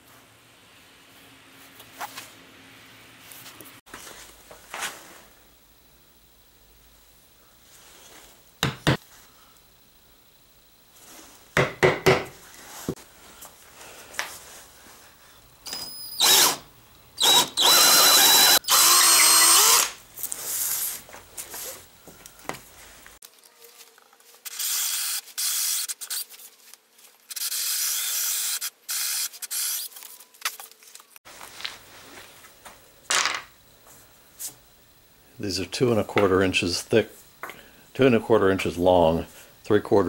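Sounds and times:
sharp knocks: 0:11.6 - 0:12.3
power drill boring into wood: 0:15.7 - 0:16.6, 0:17.2 - 0:20.0, 0:24.5 - 0:26.2, 0:27.3 - 0:29.9.

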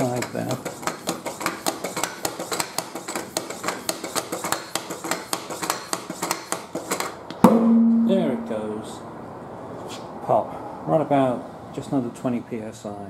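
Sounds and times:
foot pump clicking and clattering: 0:00.0 - 0:07.2.

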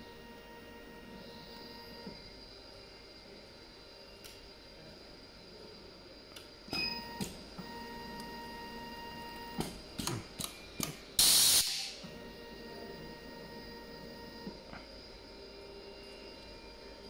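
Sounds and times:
faint steady whine: 0:00.0 - 0:17.0
loud hiss of air: 0:11.2 - 0:12.0.

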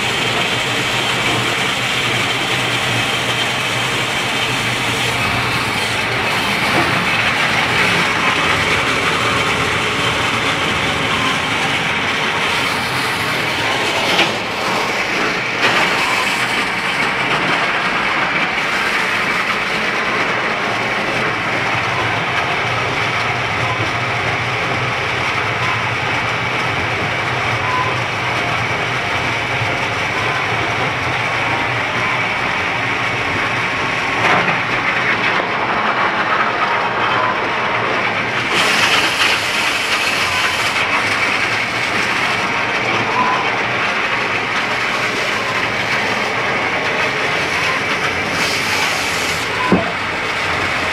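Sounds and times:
grist mill clattering and rumbling: 0:00.0 - 0:50.9.

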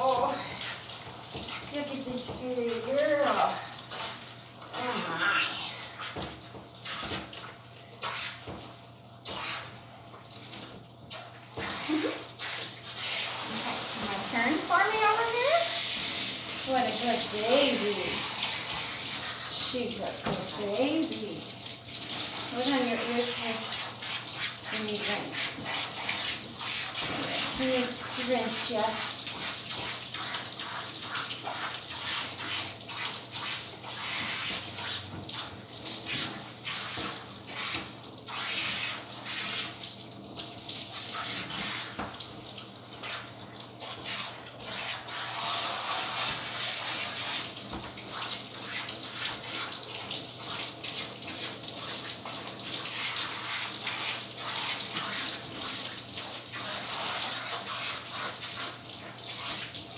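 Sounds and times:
water sprayer hissing: 0:11.6 - 0:21.2, 0:22.2 - 0:29.4.

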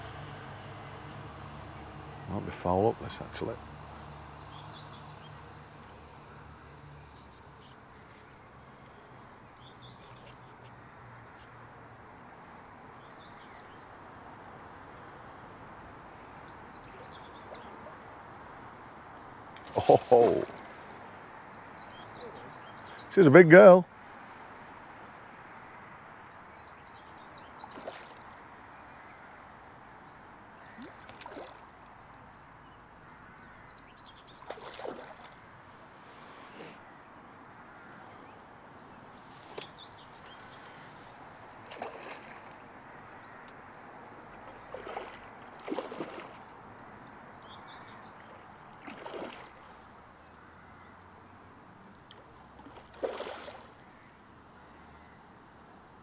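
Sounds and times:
faint bird chirps: 0:21.5 - 0:23.2
fish splashing water: 0:27.7 - 0:28.4, 0:30.7 - 0:31.9, 0:34.4 - 0:35.5, 0:41.6 - 0:42.8, 0:44.2 - 0:46.7, 0:48.2 - 0:49.8, 0:52.1 - 0:53.9.

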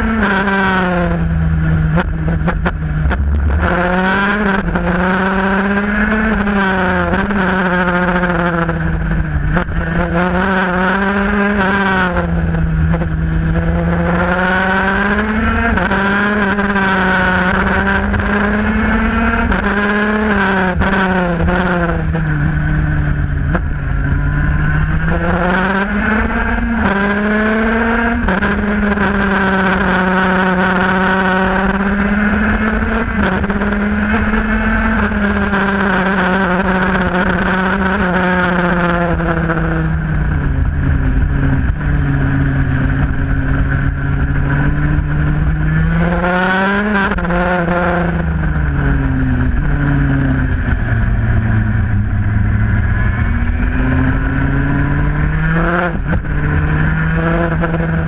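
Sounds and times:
kart engine revving through gears: 0:00.0 - 0:58.0.

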